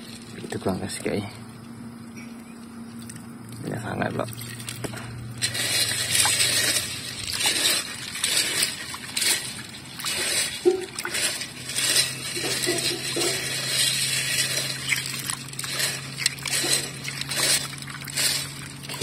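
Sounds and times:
water sloshing: 2.3s - 19.0s
shells clinking in metal basin: 4.2s - 19.0s.

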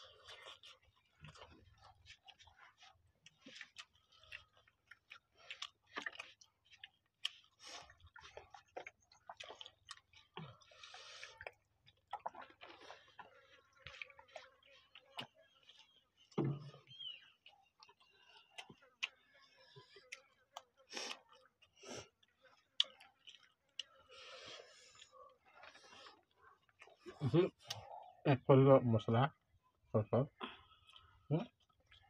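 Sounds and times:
chewing and lip smacks: 0.0s - 28.3s, 30.3s - 32.0s.

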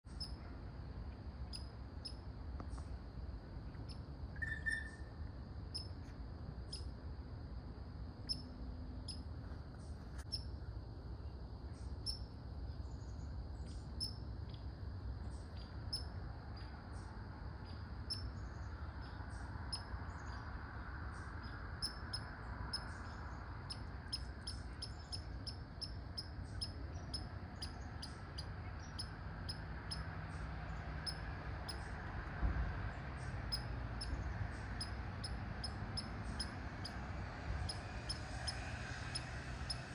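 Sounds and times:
squirrel barking: 23.7s - 30.4s, 33.5s - 37.0s.

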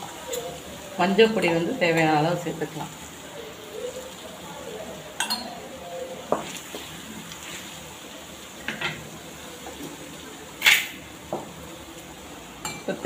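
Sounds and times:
faint sizzle: 0.0s - 13.0s
spoon stirring food: 0.1s - 11.6s.

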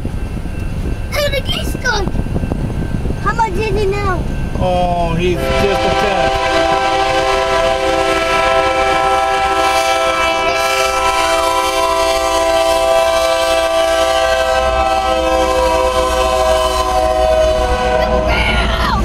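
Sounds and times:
locomotive low rumble: 0.0s - 19.0s
train air horn chord: 5.2s - 18.7s.

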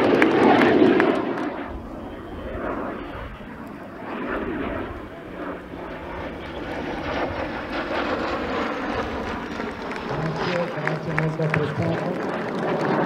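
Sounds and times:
high jet whine: 0.0s - 13.0s
jet aircraft roar: 0.0s - 13.0s.

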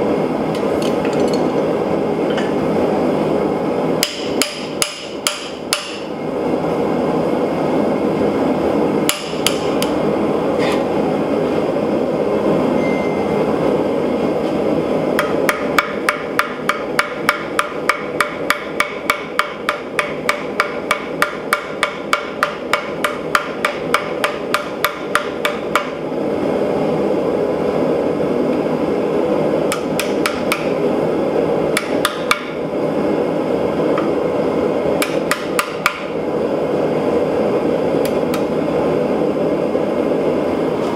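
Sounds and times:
hammer striking hot steel on anvil: 4.0s - 6.1s, 9.0s - 9.9s, 15.2s - 26.0s, 29.7s - 30.7s, 31.7s - 32.6s, 35.0s - 36.2s.

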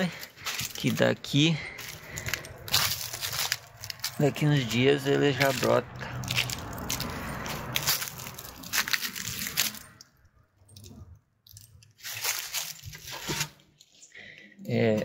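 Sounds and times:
footsteps crunching on dry leaves: 0.0s - 9.8s, 12.0s - 13.6s.

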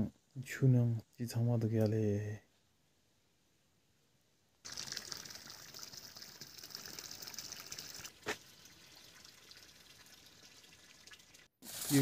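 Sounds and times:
water rushing hiss: 11.6s - 12.0s.

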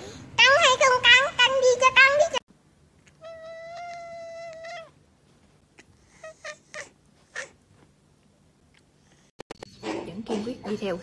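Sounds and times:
cat meowing: 3.2s - 5.0s.

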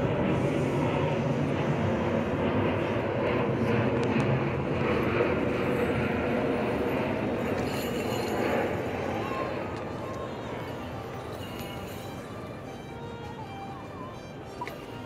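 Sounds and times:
crowd talking: 7.6s - 15.0s.

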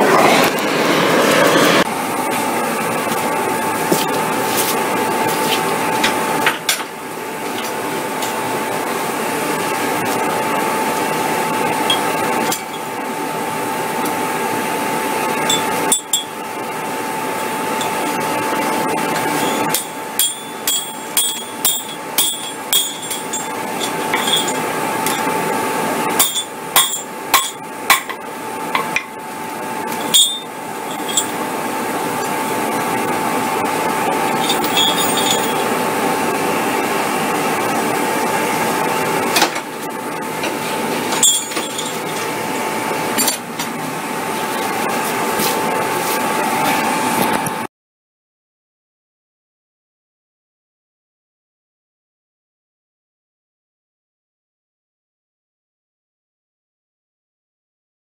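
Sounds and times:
steady drone: 0.0s - 5.3s, 15.1s - 42.9s
hammer ringing on anvil: 15.5s - 16.4s, 19.4s - 25.3s, 26.2s - 28.2s, 30.0s - 31.4s, 34.4s - 35.7s, 41.2s - 42.0s.

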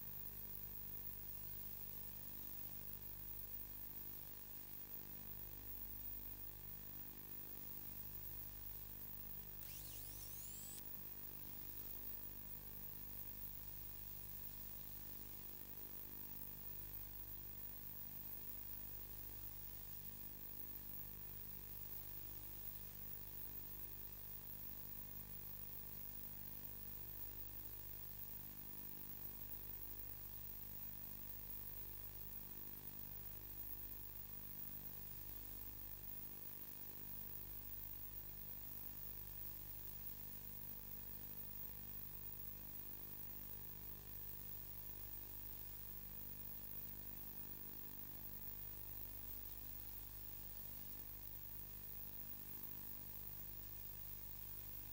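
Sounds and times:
low electrical hum: 0.0s - 24.2s
faint hiss: 9.6s - 12.2s.

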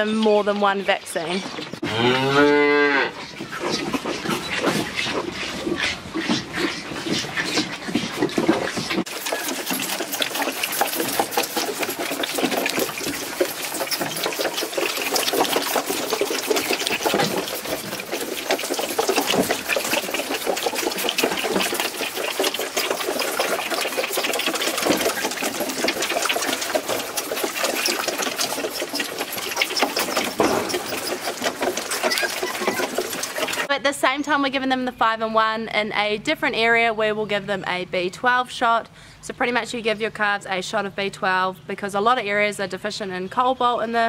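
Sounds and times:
calves slurping milk: 0.0s - 33.7s.

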